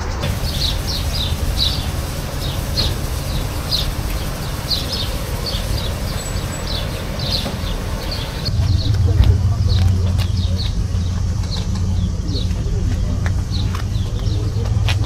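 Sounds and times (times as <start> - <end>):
insects chirping: 0.0 - 8.6
low rumble: 0.0 - 14.9.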